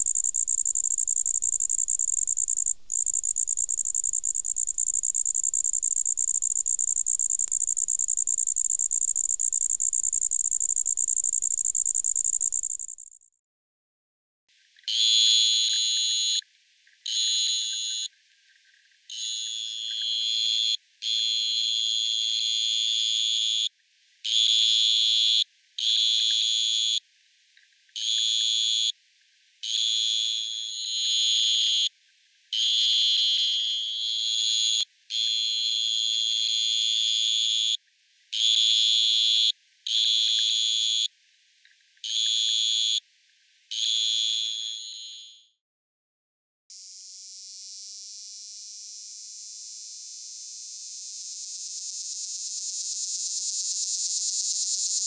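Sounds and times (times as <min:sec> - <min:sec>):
tree cricket trilling: 0:00.0 - 0:13.2, 0:50.7 - 0:55.0.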